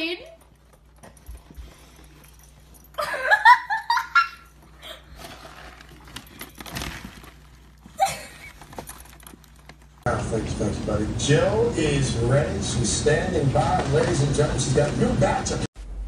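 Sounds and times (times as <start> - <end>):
person laughing: 3.0 - 5.1, 7.9 - 8.6
dog rummaging in plastic bag: 4.6 - 10.0.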